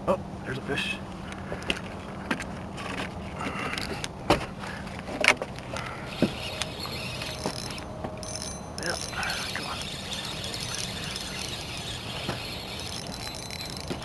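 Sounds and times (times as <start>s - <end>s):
boat motor humming: 5.8s - 14.0s
fishing rod knocking and clicking: 7.2s - 9.2s, 10.5s - 14.0s.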